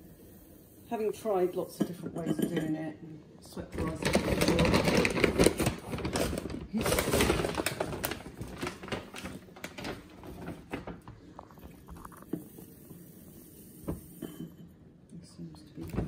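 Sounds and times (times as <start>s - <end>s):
plastic bag rustling: 3.7s - 12.2s.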